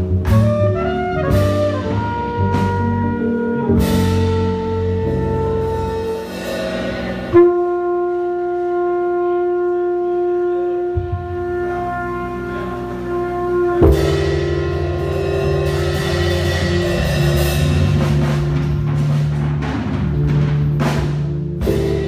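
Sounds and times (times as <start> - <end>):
live band playing: 0.0 - 22.0
long held note: 0.6 - 18.3
cymbal crashes: 5.7 - 7.5, 13.8 - 18.7.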